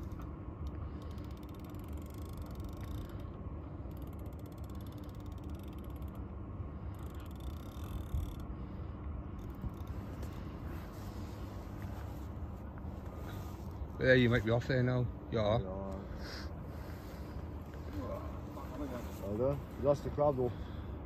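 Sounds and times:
fishing reel ratcheting: 0:00.0 - 0:08.5, 0:09.4 - 0:10.0
low steady rumble: 0:00.0 - 0:21.0.

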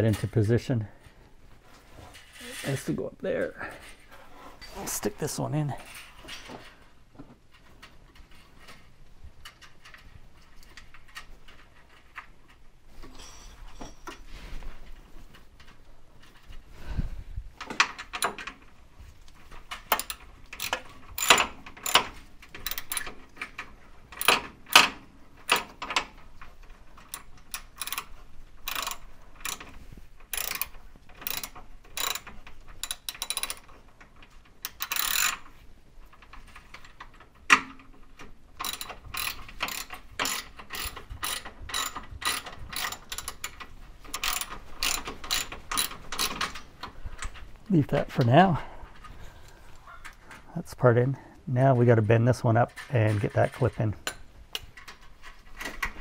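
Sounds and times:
tools clinking against metal lines: 0:13.0 - 0:14.3, 0:19.7 - 0:26.2, 0:36.2 - 0:48.7.

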